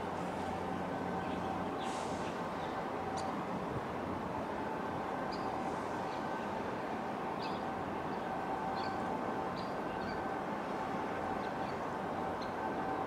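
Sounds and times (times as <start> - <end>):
ship engine drone with whine: 0.0 - 13.0.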